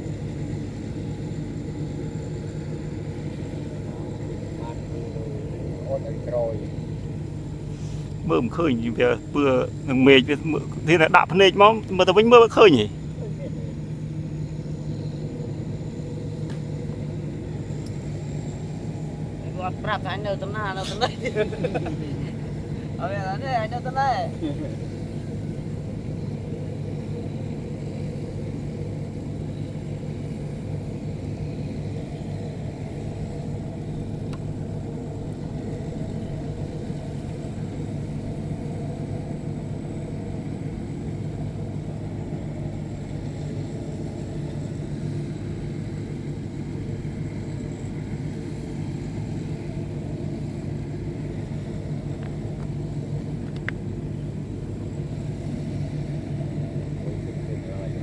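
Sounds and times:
harvester engine droning: 0.0s - 58.0s.

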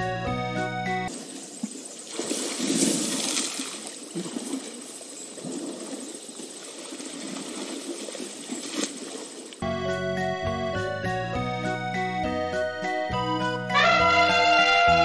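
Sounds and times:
steady outdoor hiss: 0.6s - 10.3s
water sounds: 1.1s - 9.7s.

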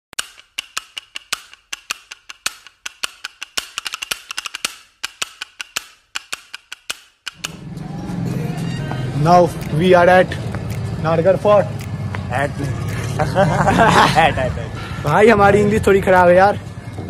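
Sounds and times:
sharp dry clicks: 0.1s - 7.6s, 9.5s - 9.8s, 10.6s - 10.9s, 11.7s - 12.1s.

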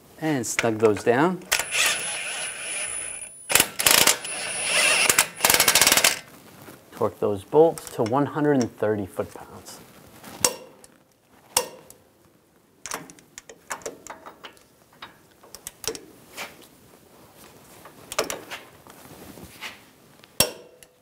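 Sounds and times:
ratchet clicks and taps: 1.5s - 6.2s
torque wrench click: 1.5s - 6.2s.

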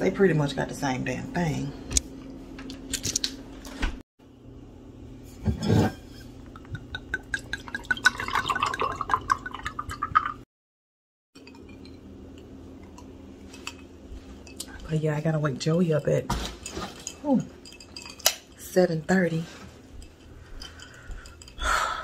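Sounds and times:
liquid glugging into a glass: 6.7s - 10.4s
low steady hum: 11.4s - 22.0s.

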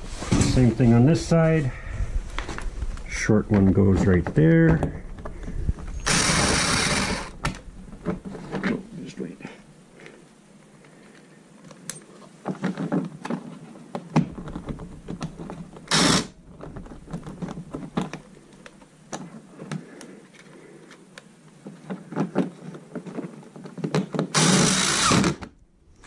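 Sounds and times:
impact driver bursts: 6.0s - 7.4s, 15.9s - 16.3s, 24.3s - 25.5s
clicks and knocks of handling: 10.8s - 24.3s.

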